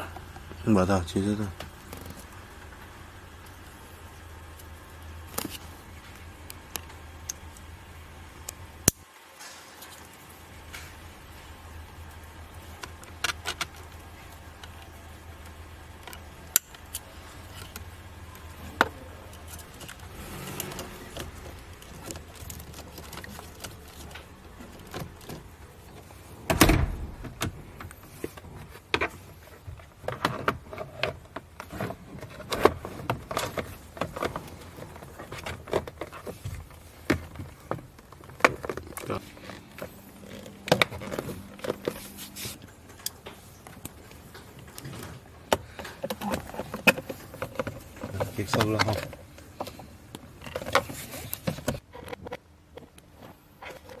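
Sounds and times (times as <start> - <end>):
loud thump: 26.5 - 27.6.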